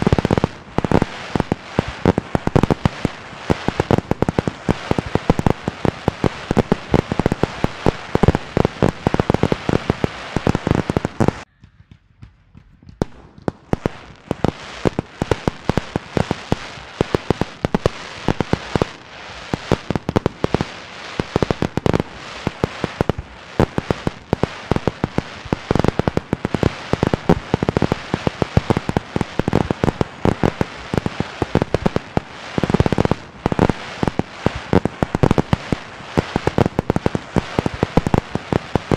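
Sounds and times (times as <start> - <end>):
fireworks bangs and crackles: 0.0 - 38.9.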